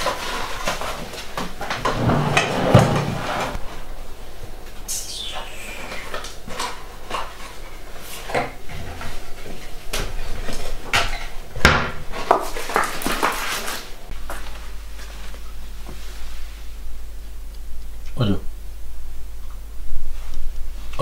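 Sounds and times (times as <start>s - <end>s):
cupboard door opening: 1.8s - 3.6s.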